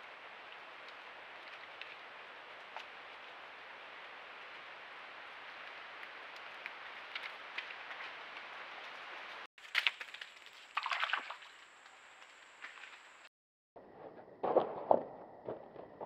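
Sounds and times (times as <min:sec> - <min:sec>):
faint splashes: 0:09.7 - 0:12.2.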